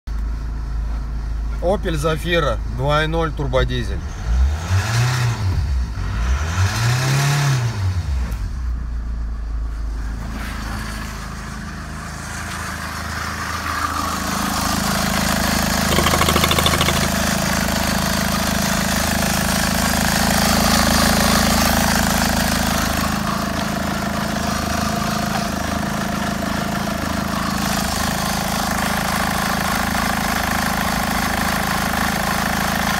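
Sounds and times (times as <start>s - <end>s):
diesel engine revving and idling: 4.0s - 8.2s.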